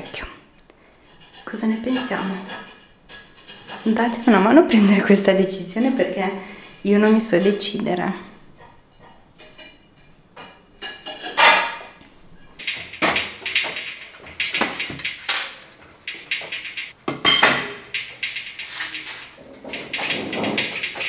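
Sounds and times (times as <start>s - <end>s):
hard objects knocking and clattering: 8.5s - 21.0s.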